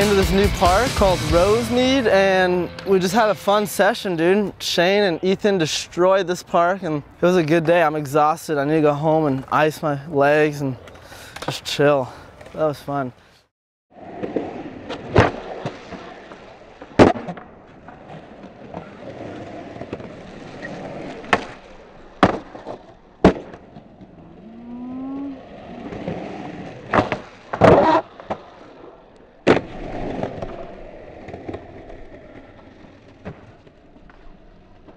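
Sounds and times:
skateboard wheels rolling on concrete: 0.0 - 13.2, 13.9 - 34.9
skateboard clacking on ground: 10.8 - 11.8, 25.8 - 34.9.

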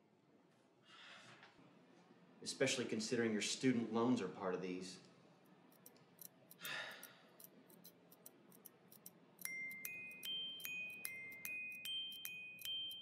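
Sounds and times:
glockenspiel melody: 9.4 - 13.0.

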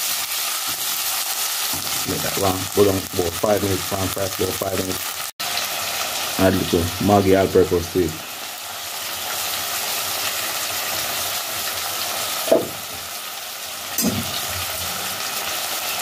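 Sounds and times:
vegetables sizzling in a pot: 0.0 - 16.0.

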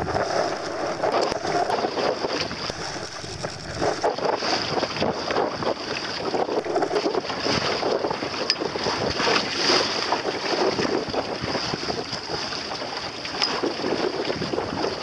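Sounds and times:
steady high hiss: 0.0 - 1.8, 2.7 - 4.1
water rushing along boat hull: 0.0 - 15.0
wind buffeting microphone: 0.0 - 15.0.

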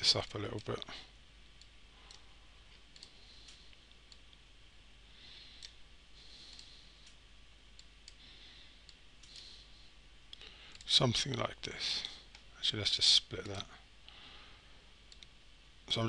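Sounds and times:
low background hiss: 0.0 - 16.0
faint computer mouse clicks: 15.1 - 15.3.

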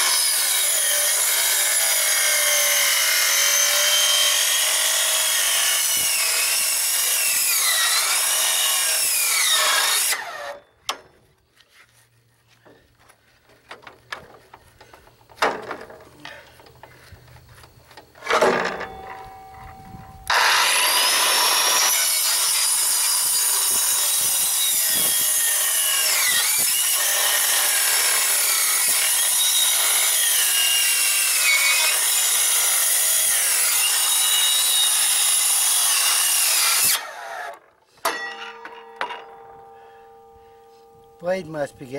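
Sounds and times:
circular saw cutting metal: 0.0 - 10.6, 20.2 - 38.9.

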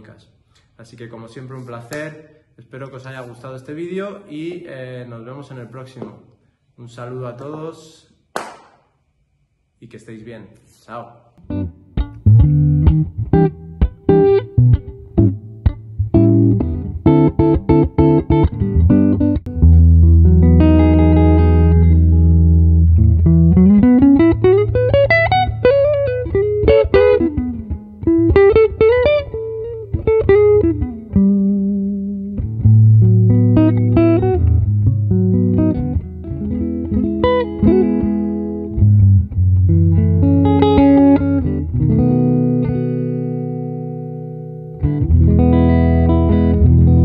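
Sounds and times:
solo jazz guitar: 11.4 - 47.0.

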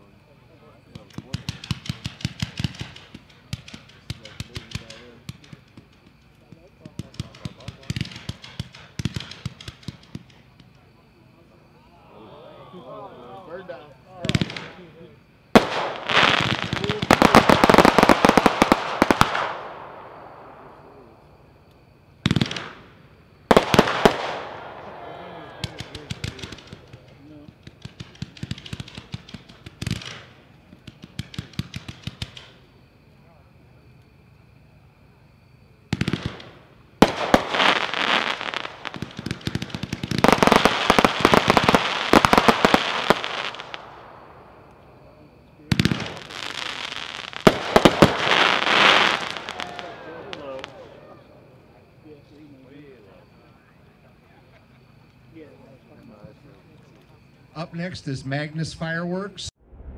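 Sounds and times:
firework bangs: 0.9 - 10.7, 14.2 - 21.2, 22.2 - 32.7, 35.9 - 52.0
fireworks pops and crackles: 0.9 - 11.0, 14.2 - 14.9, 15.5 - 19.8, 21.7 - 24.7, 25.6 - 32.7, 35.9 - 44.9, 45.6 - 50.9.

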